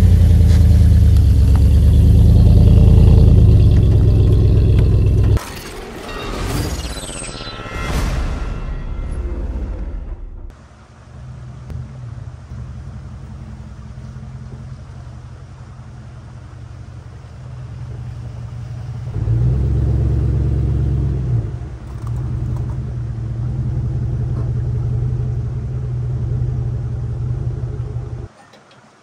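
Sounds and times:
suv engine running: 0:00.0 - 0:05.4, 0:10.5 - 0:28.3.

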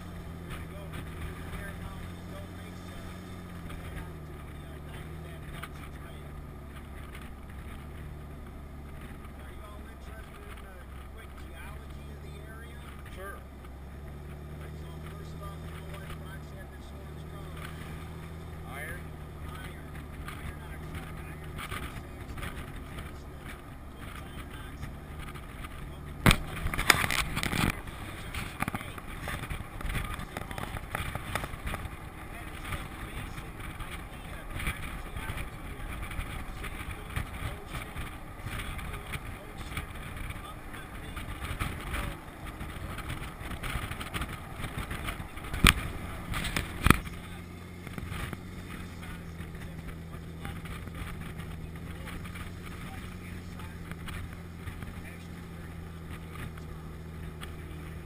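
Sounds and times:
rattling and clatter: 0:00.0 - 0:58.0
vehicle low rumble: 0:00.0 - 0:58.0.

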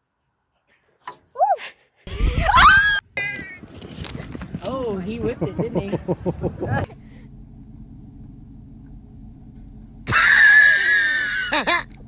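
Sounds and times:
faint background hum: 0:04.1 - 0:12.0
person shrieking: 0:10.1 - 0:11.7.

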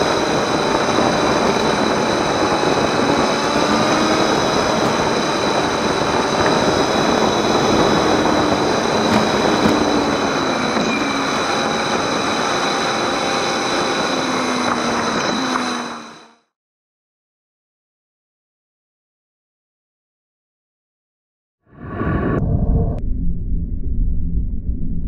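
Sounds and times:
wind and road noise: 0:00.0 - 0:16.4
motorcycle engine: 0:00.0 - 0:16.5.

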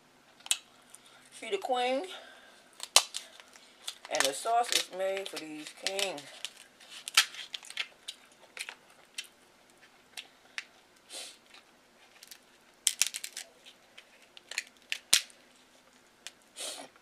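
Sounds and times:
crab shell cracking: 0:02.8 - 0:09.4, 0:12.2 - 0:15.4.

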